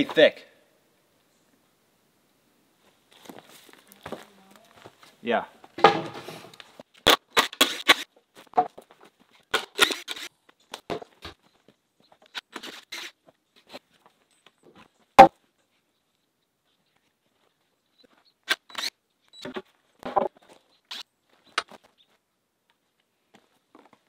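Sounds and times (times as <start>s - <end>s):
wooden boards scraping and knocking: 5.8s - 6.5s, 19.5s - 20.6s.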